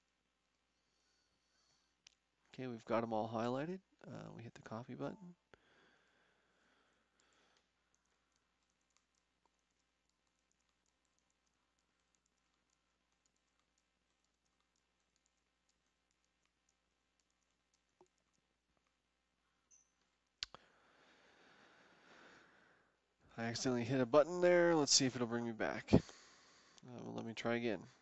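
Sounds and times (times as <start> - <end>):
keyboard typing: 7.3 - 18.9.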